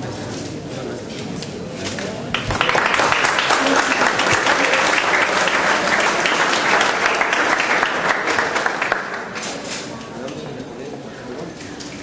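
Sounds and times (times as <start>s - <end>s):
crowd applauding: 2.3s - 9.5s.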